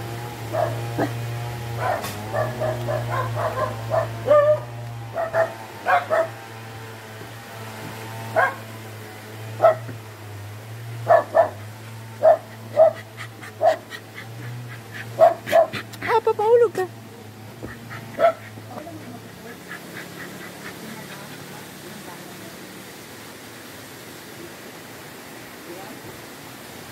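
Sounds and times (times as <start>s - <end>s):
dogs yipping and barking: 0.0s - 6.7s, 8.2s - 8.8s, 9.5s - 10.0s, 10.8s - 17.0s, 17.6s - 21.8s
dog whining: 12.2s - 16.8s.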